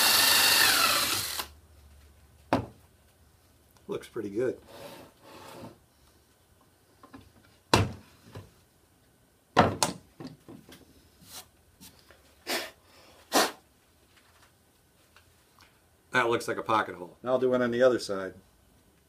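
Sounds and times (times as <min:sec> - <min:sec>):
tools knocking on wooden workbench: 0:02.5 - 0:02.8.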